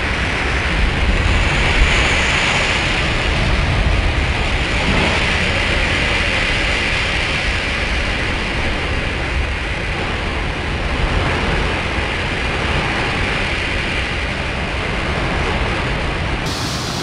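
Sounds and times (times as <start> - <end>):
surf crashing against rocks: 0.1 - 17.0.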